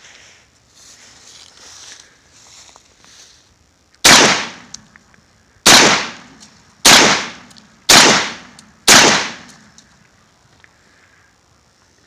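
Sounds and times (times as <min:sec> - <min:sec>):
shotgun shots: 0:04.0 - 0:04.7, 0:05.7 - 0:09.6.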